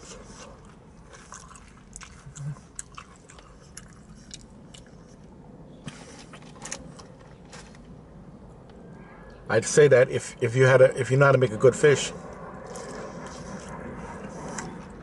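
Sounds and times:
chewing fried fish: 0:00.0 - 0:05.3, 0:12.6 - 0:15.0.

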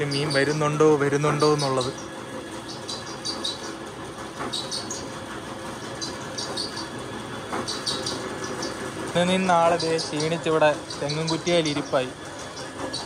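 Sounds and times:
pump motor droning: 0:00.0 - 0:13.0
high bird chirps: 0:01.4 - 0:03.8, 0:04.5 - 0:05.2, 0:05.9 - 0:07.0, 0:07.6 - 0:08.8, 0:09.4 - 0:13.0.

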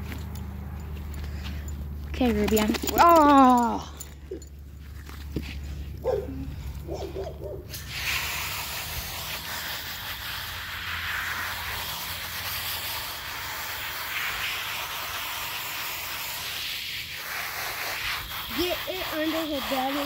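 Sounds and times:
water spraying from hose nozzle: 0:07.7 - 0:20.0.

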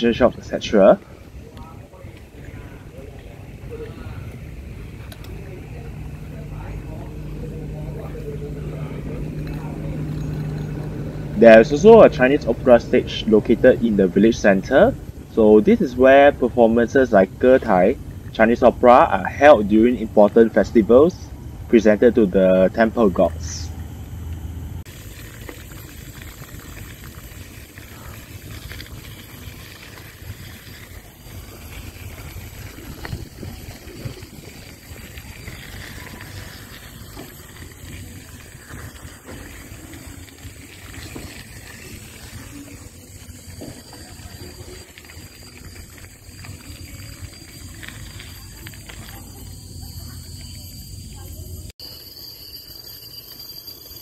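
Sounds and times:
wind on microphone: 0:29.0 - 0:39.6.

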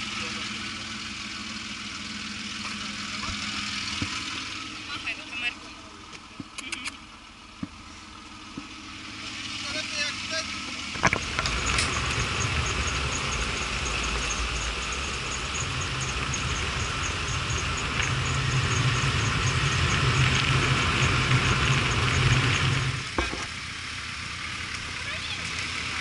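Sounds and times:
vehicle engine running: 0:00.0 - 0:26.0
fast high ticking: 0:11.2 - 0:22.4.

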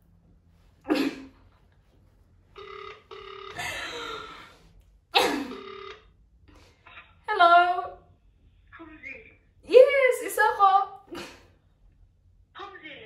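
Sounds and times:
phone ring tone: 0:02.6 - 0:04.5, 0:05.5 - 0:06.2.

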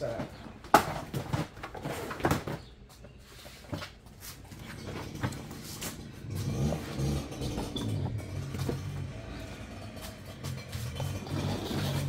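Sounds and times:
low drone: 0:04.8 - 0:12.0.

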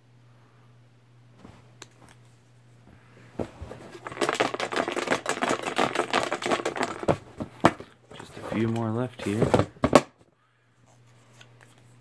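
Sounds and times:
paper slips rustling and crinkling: 0:03.8 - 0:07.2.

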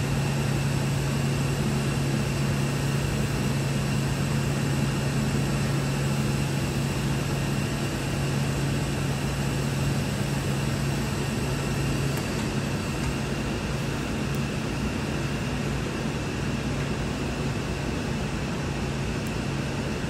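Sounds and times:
low machinery drone: 0:00.0 - 0:20.0.

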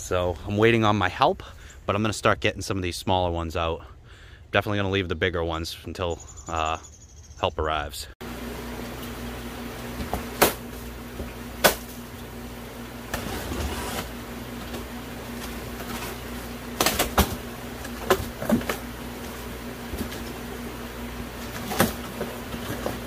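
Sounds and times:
steady low hum: 0:00.0 - 0:23.0
cardboard box being cut open: 0:13.1 - 0:14.8.

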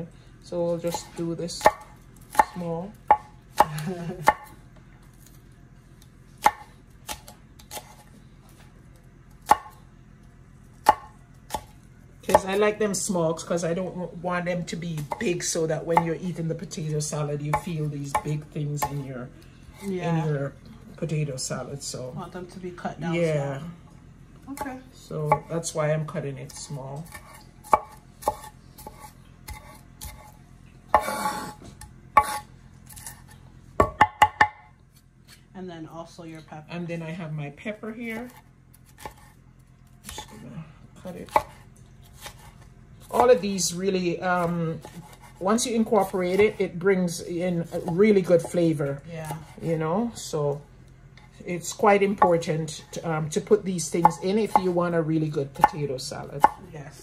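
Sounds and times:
knife chopping on wooden board: 0:00.9 - 0:04.5, 0:06.4 - 0:08.1, 0:09.4 - 0:09.8, 0:10.8 - 0:11.7, 0:14.9 - 0:16.1, 0:17.5 - 0:19.1, 0:27.0 - 0:34.7, 0:38.1 - 0:39.4, 0:41.1 - 0:43.4, 0:44.2 - 0:49.7, 0:52.1 - 0:52.5, 0:54.0 - 0:54.8, 0:55.5 - 0:56.6
knife scraping across board: 0:27.0 - 0:30.4, 0:31.0 - 0:33.4, 0:38.1 - 0:39.4, 0:41.3 - 0:42.7, 0:44.7 - 0:46.6.

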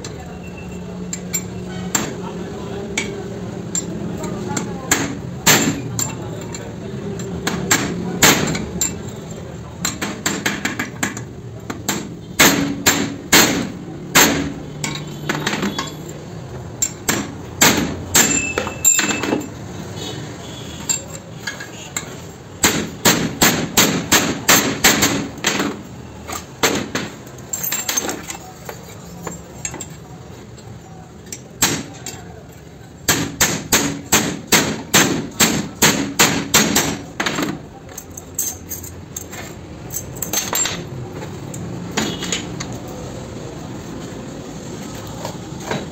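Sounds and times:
hammer striking metal: 0:11.8 - 0:16.0, 0:16.8 - 0:19.5, 0:22.6 - 0:25.8, 0:33.1 - 0:37.5.

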